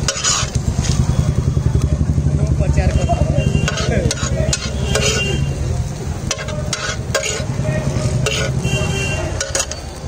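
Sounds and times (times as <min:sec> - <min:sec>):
metal spatula scraping a pan: 0:00.0 - 0:01.1, 0:03.5 - 0:05.6, 0:06.2 - 0:10.0.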